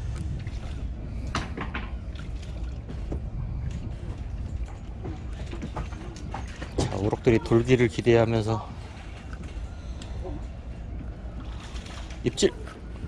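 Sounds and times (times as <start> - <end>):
wind on microphone: 0.0 - 7.0.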